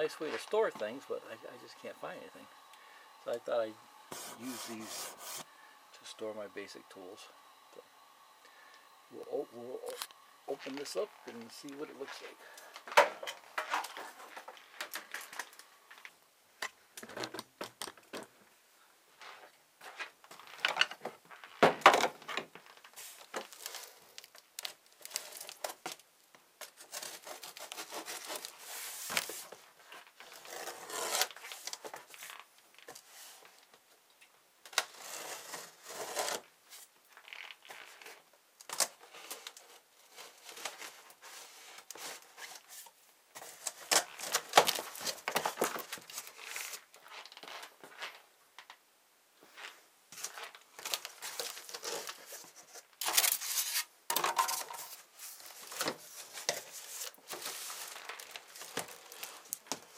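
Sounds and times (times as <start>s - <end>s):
cardboard tearing and scraping: 3.3s - 5.5s, 26.7s - 29.5s, 30.2s - 32.3s, 34.8s - 36.5s, 50.8s - 53.9s, 54.6s - 59.9s.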